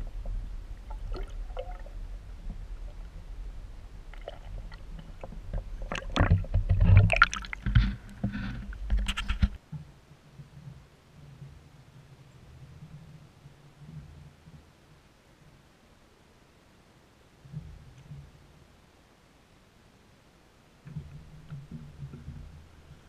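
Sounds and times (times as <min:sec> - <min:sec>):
low rumble: 0:00.0 - 0:07.2
muffled underwater sloshing: 0:00.0 - 0:09.5.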